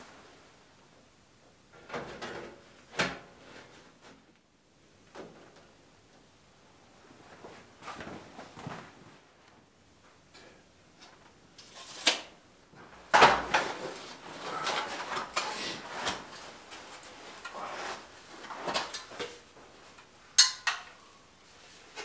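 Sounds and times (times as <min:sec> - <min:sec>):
metal stovepipe clanking: 0:20.4 - 0:21.0.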